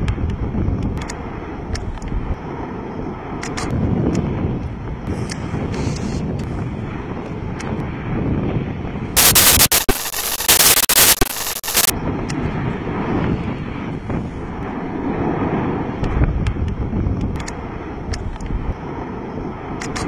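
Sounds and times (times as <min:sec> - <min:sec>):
faint crackles: 0:09.2 - 0:11.9
harsh hissing blast: 0:09.2 - 0:11.9.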